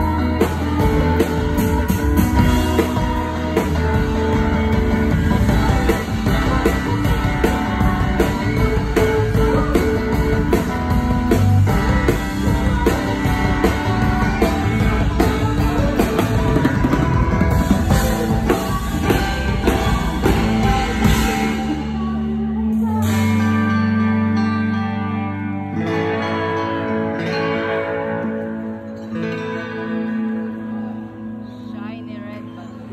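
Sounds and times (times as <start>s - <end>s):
woman singing: 0.0s - 24.8s
bass guitar: 0.0s - 32.9s
drums: 0.0s - 32.9s
electric guitar: 0.0s - 32.9s.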